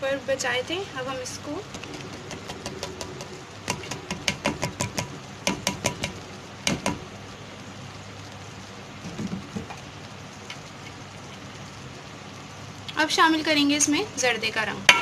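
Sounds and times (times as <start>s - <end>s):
metal spoon tapping a pot: 1.7s - 7.0s.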